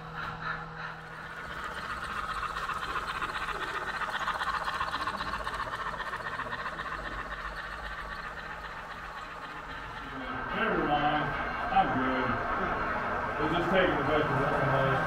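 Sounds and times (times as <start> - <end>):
model train rattling along track: 0.0 - 15.0.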